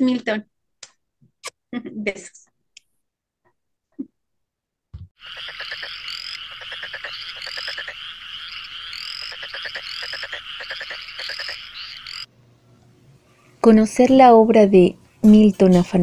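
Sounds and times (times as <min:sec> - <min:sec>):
frogs croaking: 0:05.2 - 0:12.3.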